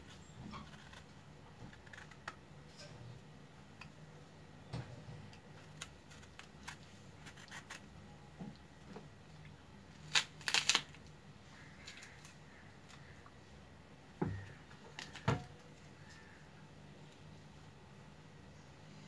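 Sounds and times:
fruit rind cracking clicks: 10.0 - 11.1.

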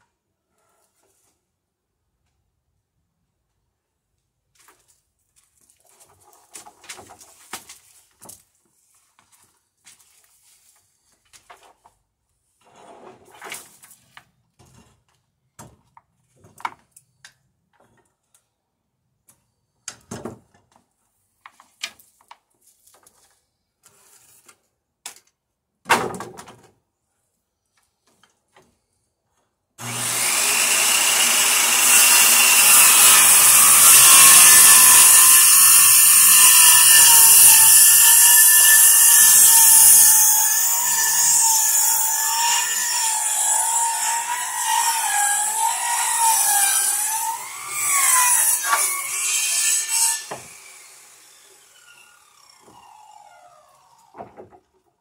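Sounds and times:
circular saw cutting wood: 29.8 - 54.3.

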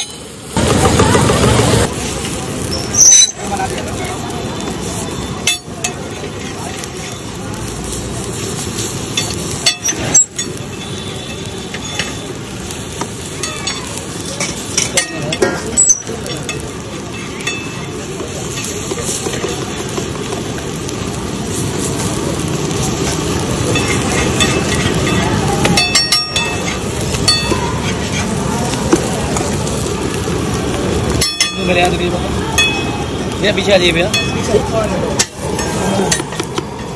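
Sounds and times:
food sizzling on a griddle: 0.0 - 36.9
metal spatula scraping a griddle: 2.2 - 4.0, 4.7 - 7.3, 8.3 - 12.3, 13.0 - 19.7, 22.9 - 29.1.

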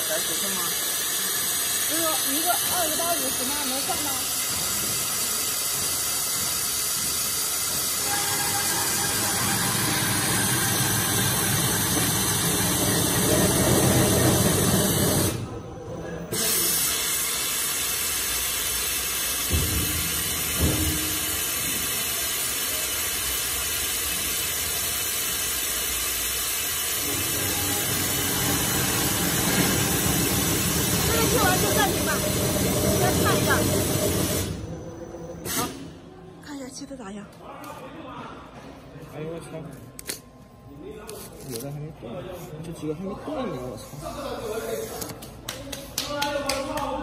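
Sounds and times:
cutting machine hissing: 0.0 - 15.5, 26.3 - 34.6.

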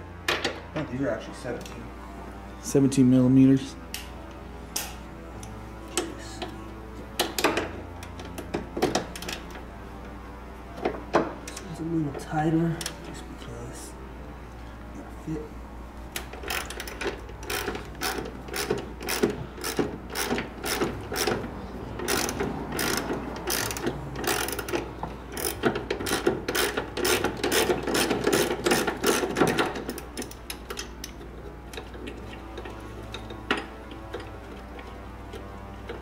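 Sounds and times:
socket ratchet clicking: 16.4 - 21.4, 22.0 - 31.2.

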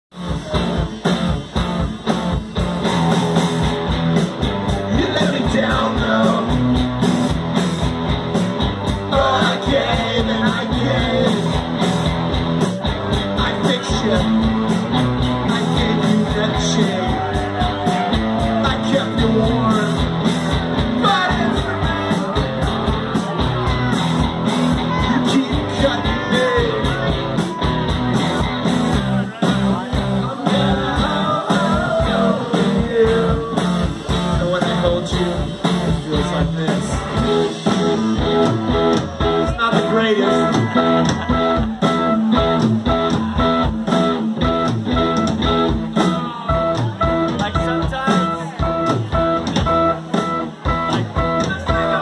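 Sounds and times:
electric guitar: 0.1 - 52.0
rock band playing: 0.1 - 52.0
steady drum beat: 0.1 - 52.0
person singing lead vocal: 4.6 - 7.1, 8.8 - 11.9, 12.8 - 24.1, 24.7 - 28.3, 28.9 - 43.9.

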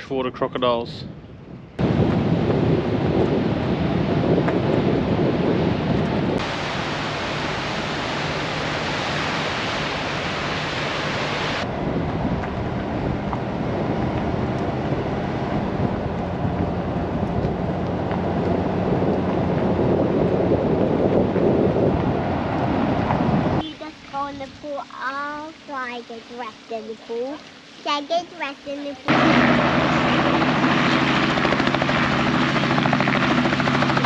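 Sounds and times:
water roaring through floodgate: 6.4 - 33.3.

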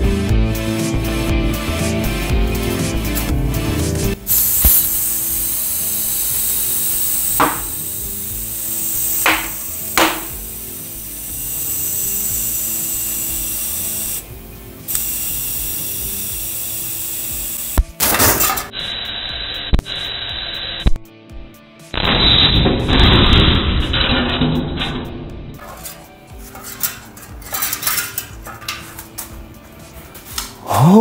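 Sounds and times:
compressed air hissing: 4.2 - 20.9
sharp crack: 9.2 - 10.4, 22.0 - 25.4.

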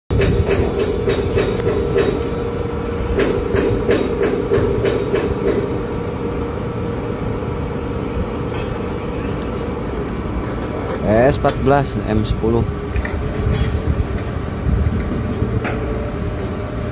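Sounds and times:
crane machinery humming: 0.1 - 16.9
strong wind: 0.1 - 16.9
metal clanking and rattling: 13.0 - 13.9.

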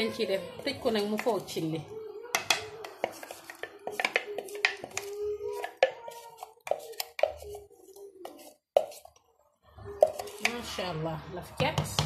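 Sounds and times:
utensils clinking against metal pot: 2.3 - 7.6.

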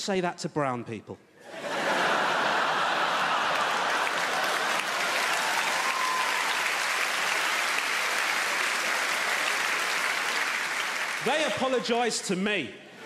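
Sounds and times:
large audience applauding: 2.0 - 12.0.

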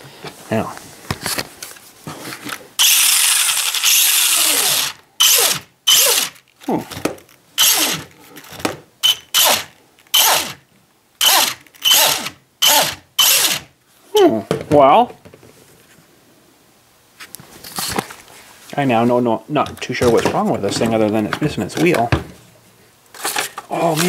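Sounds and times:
electric toy truck motor whining: 2.8 - 6.4, 7.6 - 8.1, 9.0 - 10.6, 11.2 - 13.7.

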